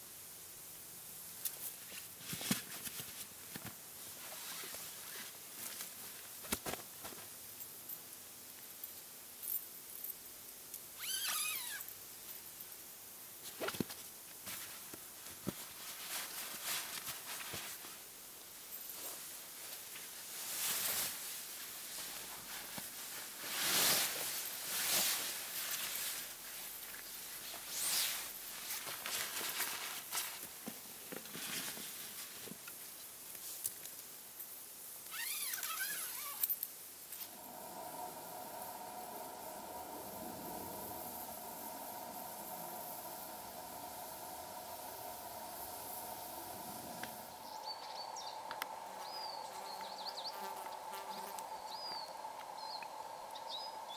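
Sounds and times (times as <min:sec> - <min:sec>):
mesh net and fabric rustling: 0:01.5 - 0:07.4, 0:13.4 - 0:18.0, 0:18.9 - 0:32.6
rustling and light knocks: 0:28.6 - 0:34.0.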